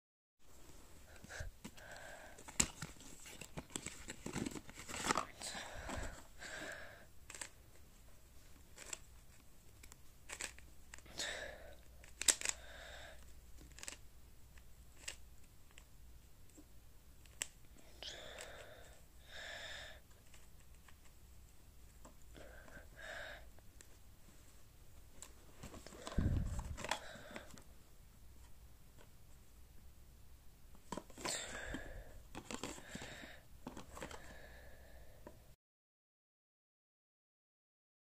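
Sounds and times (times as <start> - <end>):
paper box rustling and scraping: 2.4 - 6.3, 25.4 - 27.6
plastic cube clicking: 7.3 - 7.6, 8.8 - 9.0, 9.8 - 11.1, 12.0 - 12.6, 13.6 - 14.0, 14.6 - 15.8
breaths through the nose: 25.8 - 27.6.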